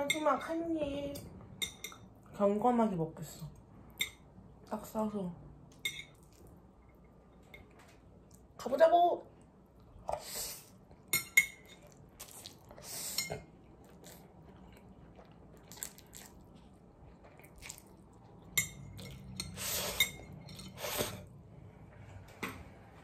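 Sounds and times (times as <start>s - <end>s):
noodles being slurped: 17.2s - 18.1s.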